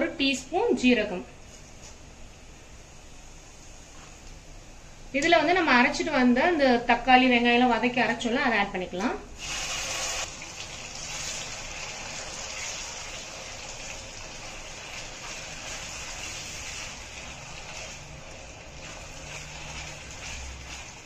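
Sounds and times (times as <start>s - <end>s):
paste sizzling in hot oil: 9.4s - 21.0s
spatula stirring: 14.3s - 21.0s.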